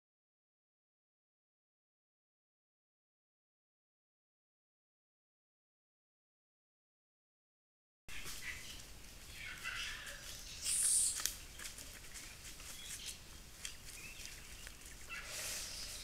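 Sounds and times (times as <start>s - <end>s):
animal chirps: 8.1s - 11.3s, 15.0s - 16.0s
footsteps on dry leaves: 8.1s - 16.0s
short high hiss: 10.6s - 11.3s, 15.2s - 16.0s.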